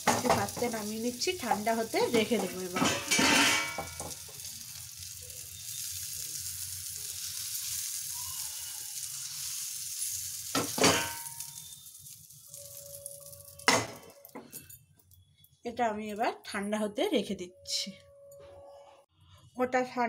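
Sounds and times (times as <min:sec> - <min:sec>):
hot oil sizzling in a pan: 0:00.0 - 0:14.7.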